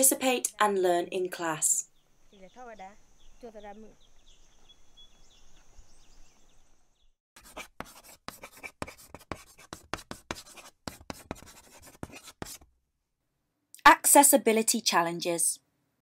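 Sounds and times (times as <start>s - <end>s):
faint outdoor ambience: 0.0s - 6.9s
chalk scratching on blackboard: 7.4s - 12.7s.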